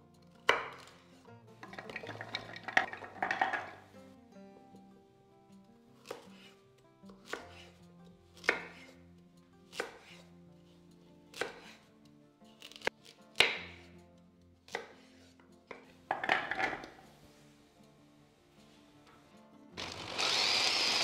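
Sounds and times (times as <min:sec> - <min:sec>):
knife chopping carrots on board: 0:00.4 - 0:01.0, 0:06.0 - 0:07.8, 0:08.4 - 0:09.0, 0:09.6 - 0:10.3, 0:11.3 - 0:11.9, 0:12.6 - 0:14.0, 0:14.6 - 0:17.0
carrot chunks clattering into bowl: 0:01.6 - 0:03.8, 0:16.1 - 0:17.0.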